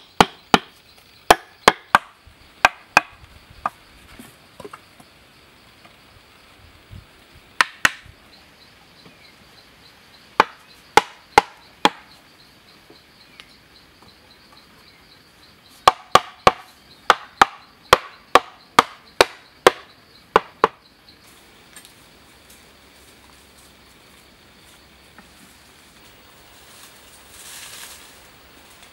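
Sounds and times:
hand tool knocking bamboo: 0.0s - 3.2s, 7.6s - 8.1s, 10.4s - 12.1s, 15.8s - 20.8s.

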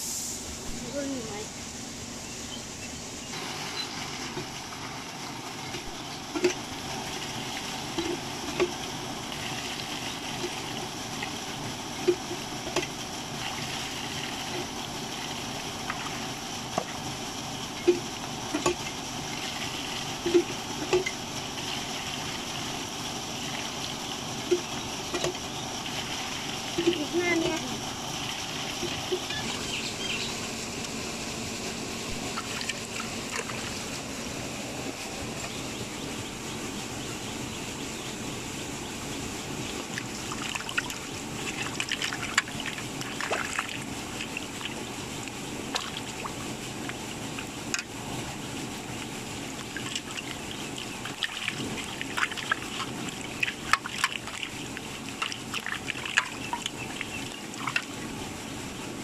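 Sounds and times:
water trickling: 39.7s - 58.7s
water splashing in metal bowl: 39.9s - 47.9s, 48.8s - 58.1s.

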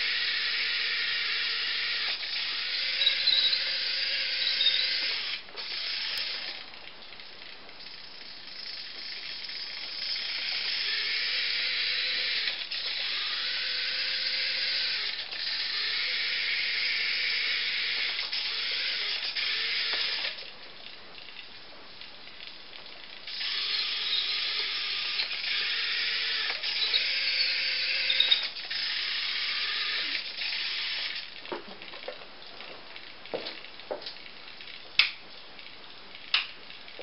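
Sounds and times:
toy electric motor whirring: 0.0s - 6.7s, 7.8s - 20.5s, 23.2s - 31.4s.

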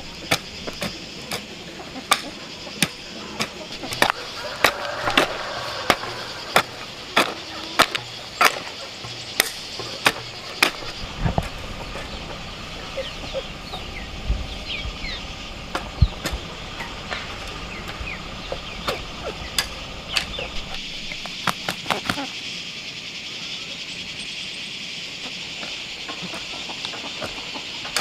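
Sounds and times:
birds chirping: 0.0s - 28.0s
high background hiss: 0.0s - 28.0s
hoe chopping into soil: 0.2s - 1.5s, 2.1s - 11.5s.

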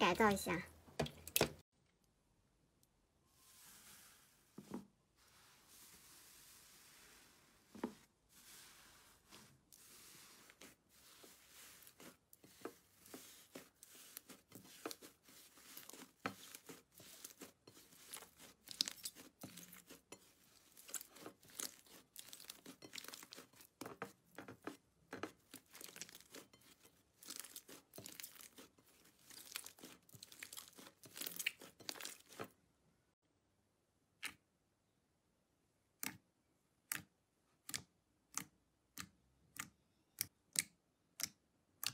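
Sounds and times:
slime crackling and tearing: 13.0s - 23.7s, 25.4s - 32.4s.

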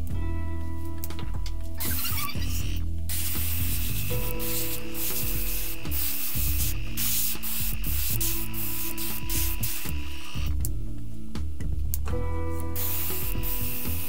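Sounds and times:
airbrush spraying hiss: 1.8s - 10.5s, 12.7s - 14.0s.

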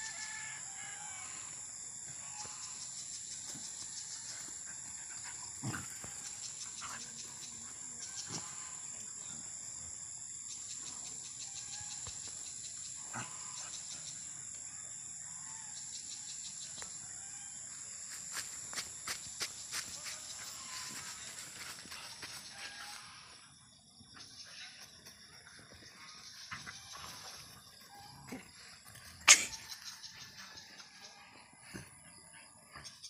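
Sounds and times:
puppies growling and scuffling: 3.5s - 7.5s.

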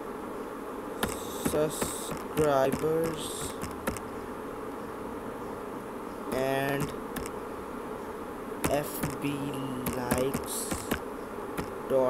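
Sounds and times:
electrical buzz: 0.8s - 5.2s, 6.3s - 12.0s
person humming: 1.0s - 3.9s, 6.3s - 6.9s, 8.7s - 11.0s
keyboard clicks: 1.0s - 4.1s, 6.3s - 7.4s, 8.6s - 11.0s, 11.6s - 11.8s.

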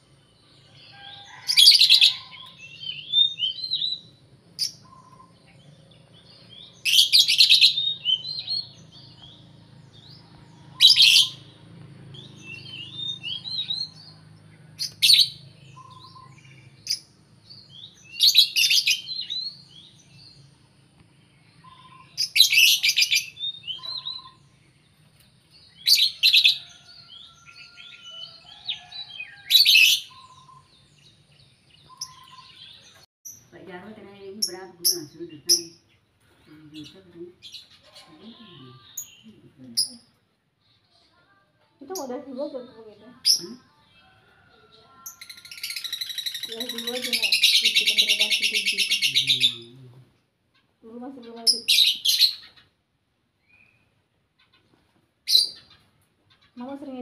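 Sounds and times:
soft twittering chirps: 0.0s - 33.6s
lovebirds chattering calls: 0.3s - 20.5s, 21.3s - 36.1s, 41.9s - 52.8s, 53.5s - 57.0s.

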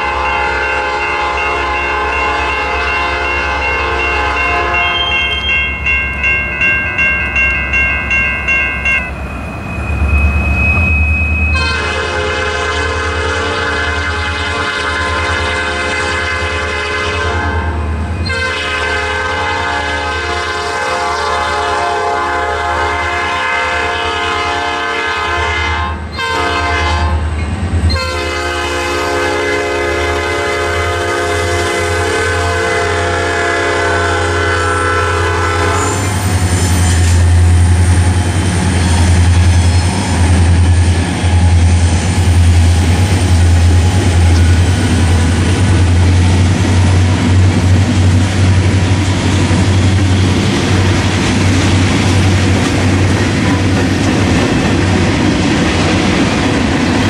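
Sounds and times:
locomotive air horn blasts: 0.0s - 5.5s, 11.5s - 27.3s, 27.9s - 36.2s
crossing bells ringing: 0.0s - 12.4s
diesel engine and wheels rumbling: 5.7s - 14.2s.

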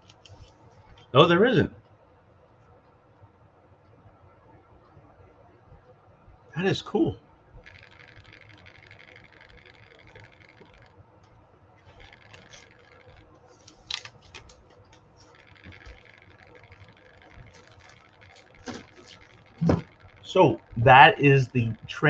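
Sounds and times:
sharp clicks: 7.6s - 20.8s
paper rustling: 13.6s - 15.8s, 18.4s - 19.8s.

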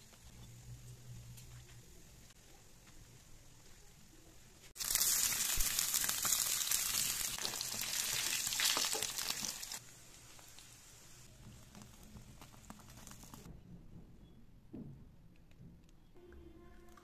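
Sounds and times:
pork sizzling in hot oil: 4.8s - 11.3s.

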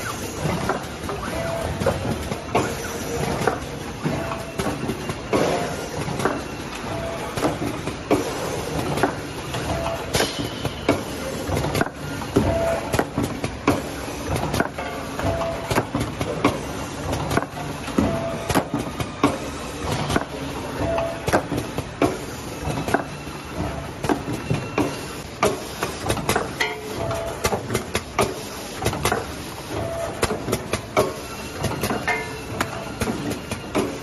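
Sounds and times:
machinery clicking and clacking: 0.0s - 34.0s.

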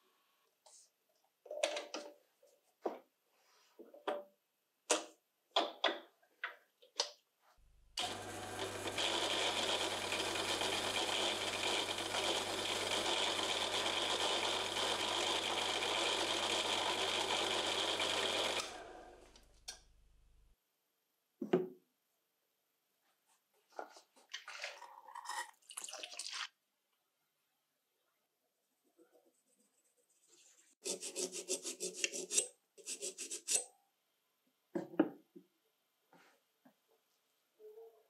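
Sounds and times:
lathe humming: 8.0s - 19.3s.

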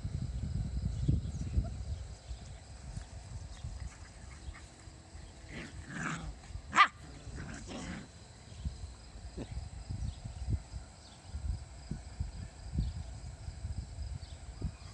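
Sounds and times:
dog barking: 6.7s - 7.0s.

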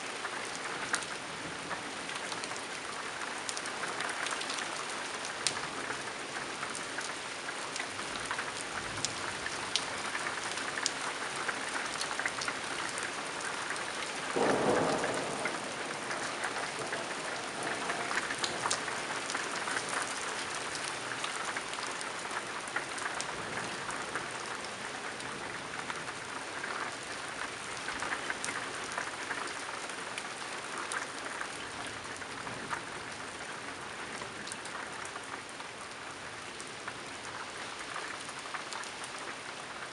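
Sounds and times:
rain falling on a tiled roof: 0.0s - 39.9s
thunderclap: 14.4s - 20.1s.

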